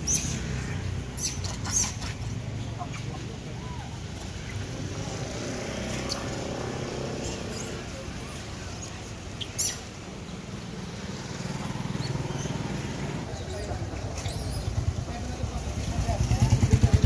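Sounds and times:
high-pitched animal squeaks: 1.2 - 2.1.

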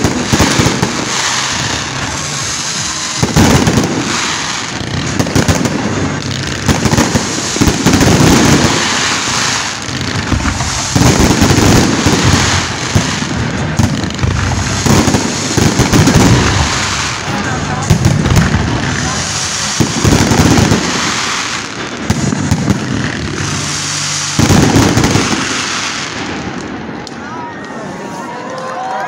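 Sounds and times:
fireworks bangs: 0.0 - 28.6.

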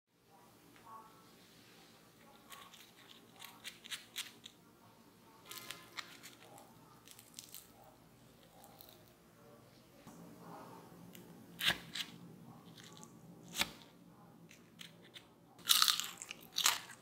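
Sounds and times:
fried potato crackling and crunching: 2.3 - 4.6, 5.4 - 7.8, 14.5 - 17.0.

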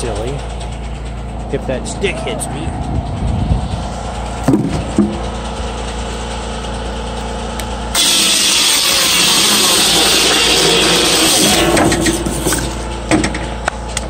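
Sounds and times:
circular saw spinning: 7.9 - 14.0
saw cutting wood: 8.0 - 13.3.

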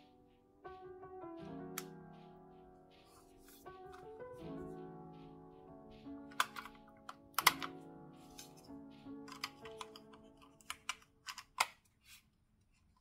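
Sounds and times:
background music: 0.0 - 11.8
mouse clicks and taps: 6.3 - 6.8, 7.4 - 7.8.

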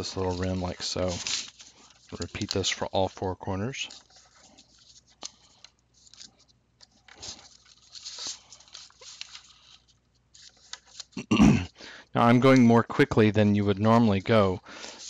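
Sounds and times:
paper rustling and scraping: 0.0 - 11.2.

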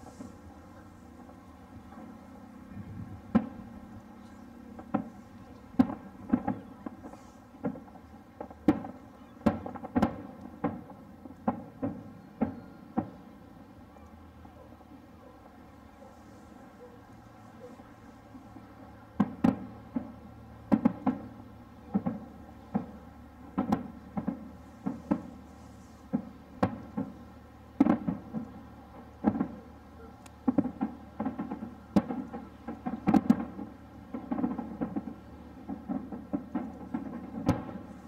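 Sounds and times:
distant firework shells bursting: 3.2 - 13.6, 19.2 - 38.0.

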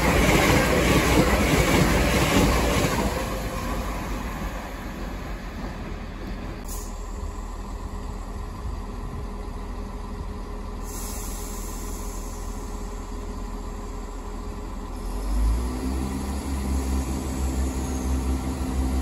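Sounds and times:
diesel train engines idling: 0.0 - 19.0.

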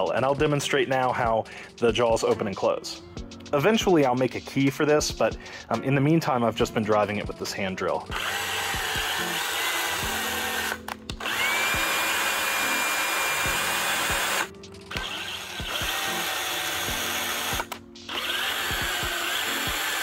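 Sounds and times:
cordless drill motor whining: 8.1 - 20.0.

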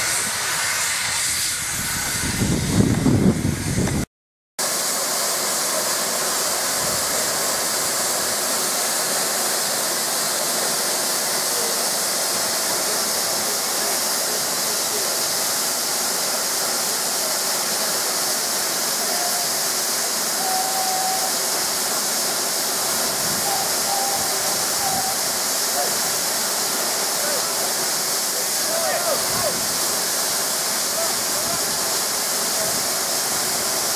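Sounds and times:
steam hissing from locomotive: 0.0 - 33.9.

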